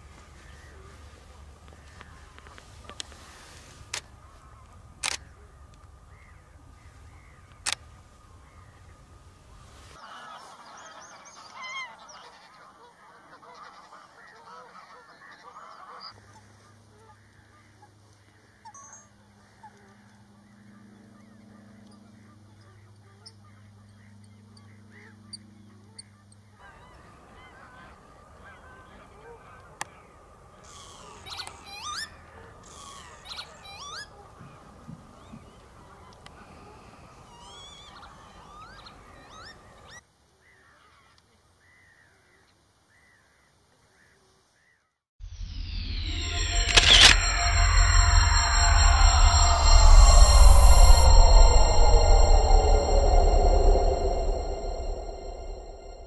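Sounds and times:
steady low hum: 45.2s - 56.0s
sharp clicks: 45.6s - 53.0s.

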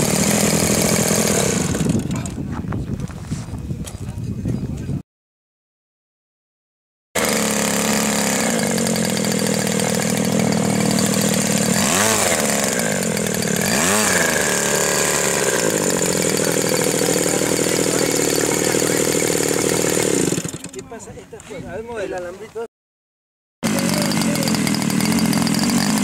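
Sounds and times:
model aircraft engine and propeller: 0.0s - 2.4s, 7.2s - 21.1s, 23.6s - 26.0s.

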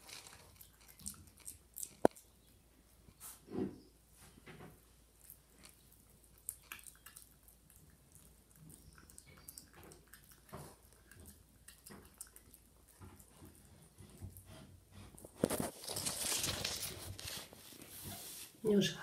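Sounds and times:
puppy chewing: 0.0s - 2.5s, 5.1s - 17.4s.

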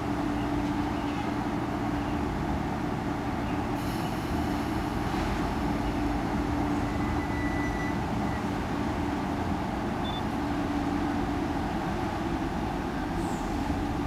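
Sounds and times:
electric train hum and rumble: 0.0s - 14.0s
faint whistle-like tone: 6.8s - 8.6s, 10.0s - 10.2s
short high beep: 6.9s - 8.5s, 10.0s - 10.2s.

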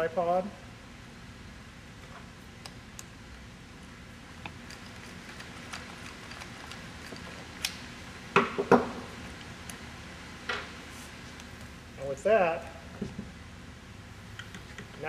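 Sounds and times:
metal hardware clicking: 4.4s - 7.9s.

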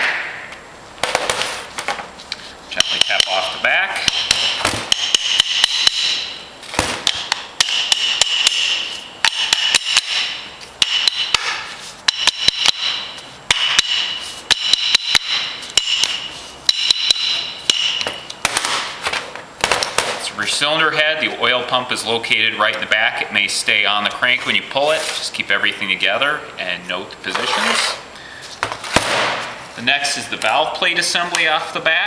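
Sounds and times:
hammer tapping on metal: 2.8s - 3.4s, 4.0s - 6.4s, 7.0s - 18.4s.

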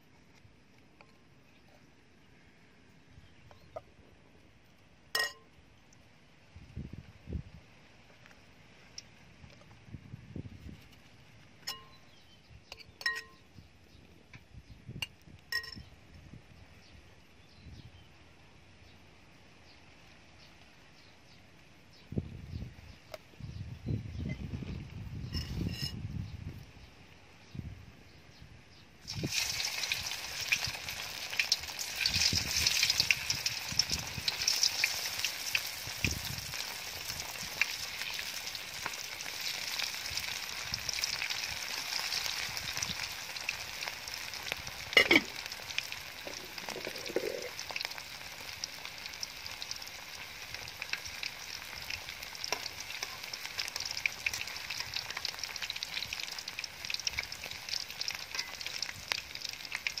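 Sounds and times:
hot oil sizzling in a wok: 29.0s - 60.0s.

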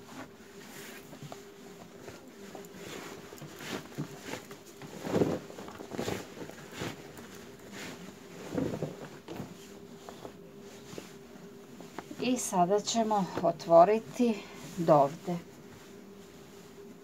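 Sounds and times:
denim rustling: 0.7s - 12.2s.

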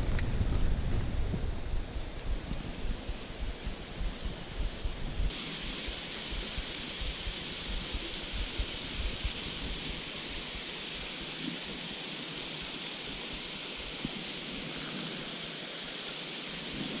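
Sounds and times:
wind buffeting microphone: 0.0s - 10.5s
river running over stones: 2.8s - 17.0s.

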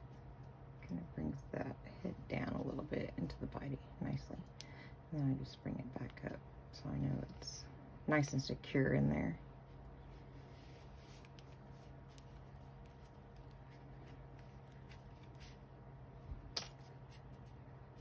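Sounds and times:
steady low hum: 0.0s - 18.0s
fingers rustling yarn: 9.6s - 18.0s.

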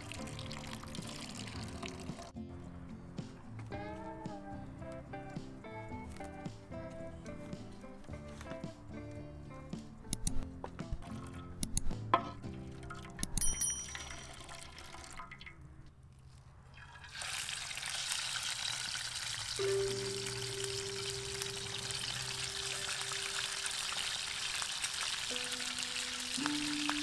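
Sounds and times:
fish sizzling in hot oil: 0.0s - 2.3s, 16.8s - 27.0s
click and chime: 13.2s - 14.2s
held music note: 19.6s - 23.6s.

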